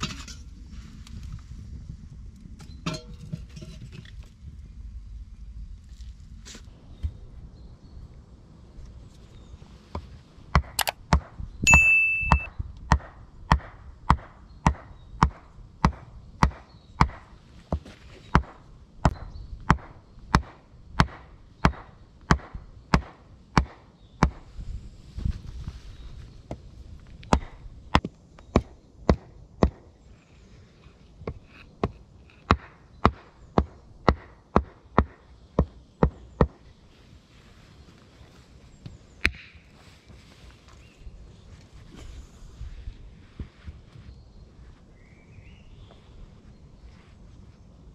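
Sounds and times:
high whistle-like tone: 11.7s - 12.5s.

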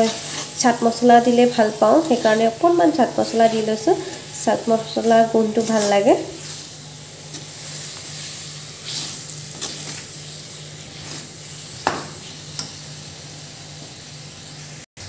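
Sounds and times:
spices sizzling in oil: 0.0s - 14.8s
steel spoon scraping a wok: 1.5s - 12.8s.

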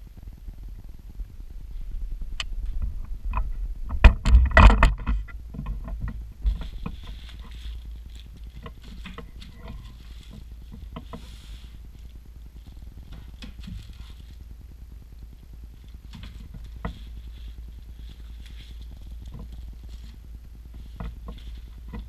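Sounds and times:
plastic bags crinkling: 6.4s - 14.4s.

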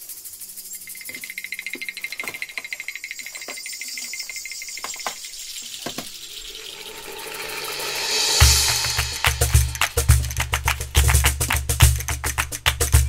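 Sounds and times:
background music with ticking rhythm: 8.4s - 13.0s.

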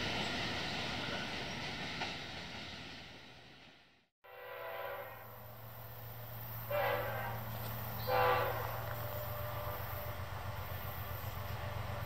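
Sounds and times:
locomotive air horn blasts: 4.2s - 5.4s, 6.6s - 10.3s.

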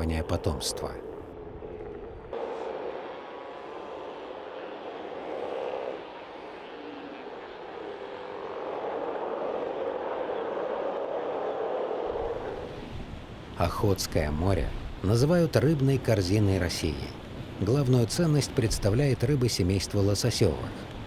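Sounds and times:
sea lions roaring: 0.3s - 12.8s.

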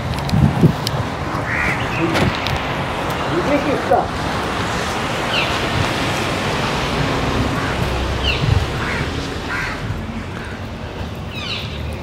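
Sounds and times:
outdoor rushing noise: 0.0s - 12.0s
falling bird calls: 1.4s - 3.3s, 5.2s - 5.7s, 7.5s - 11.9s.

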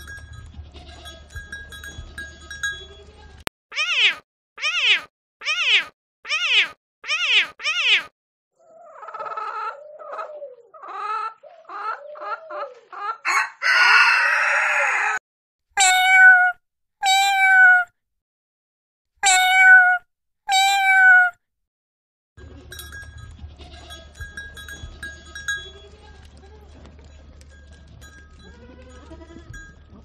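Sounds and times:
cat meowing: 3.7s - 8.1s, 15.8s - 17.9s, 19.2s - 21.4s.

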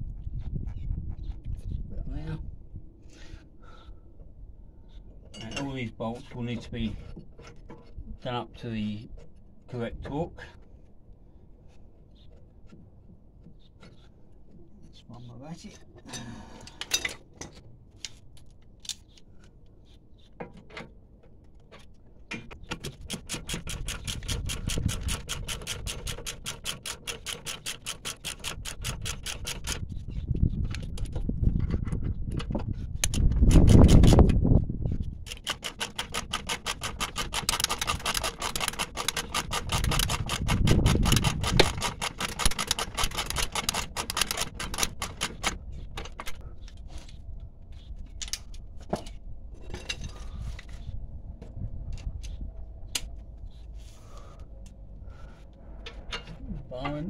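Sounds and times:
scattered clicks and knocks: 20.4s - 29.9s, 30.6s - 34.4s, 35.2s - 46.4s
socket ratchet clicking: 35.3s - 45.5s.

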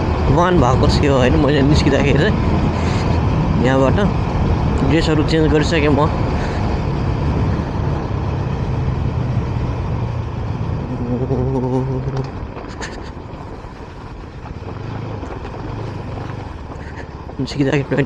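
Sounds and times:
motorcycle engine running: 0.0s - 18.0s
road and wind noise: 0.0s - 18.0s.

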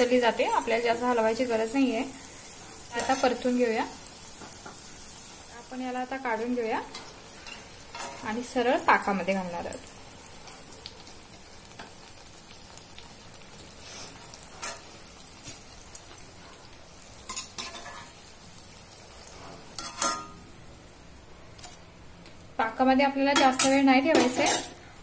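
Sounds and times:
frying in hot oil sizzle: 0.0s - 25.0s
metal spoon clinking against pan: 19.8s - 20.4s.

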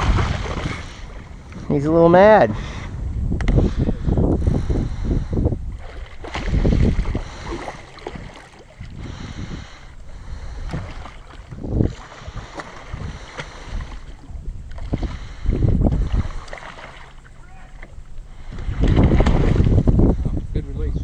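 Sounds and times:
water splashing: 0.0s - 3.0s, 5.0s - 20.2s
wind buffeting microphone: 0.0s - 21.0s.

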